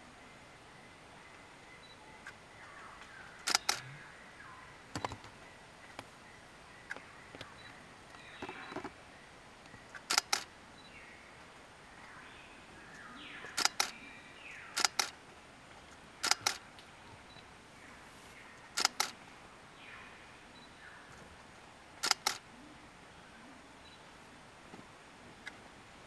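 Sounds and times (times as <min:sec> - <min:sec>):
quiet forest background: 0:00.0 - 0:26.0
camera shutter double clicks: 0:03.4 - 0:03.8, 0:10.0 - 0:10.5, 0:13.5 - 0:14.0, 0:14.8 - 0:15.2, 0:16.2 - 0:16.6, 0:18.8 - 0:19.2, 0:22.0 - 0:22.4.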